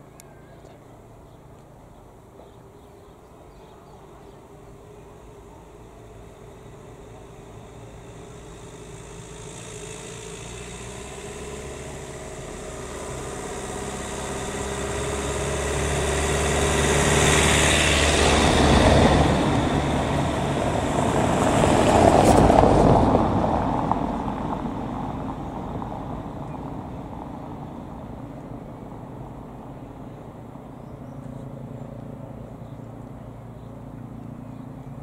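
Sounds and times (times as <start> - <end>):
vehicles passing close by: 0.0 - 35.0.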